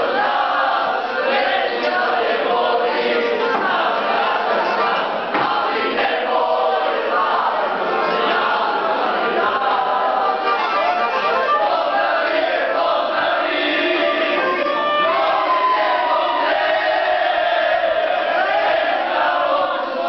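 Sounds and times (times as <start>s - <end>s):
men singing in chorus: 0.0s - 10.7s.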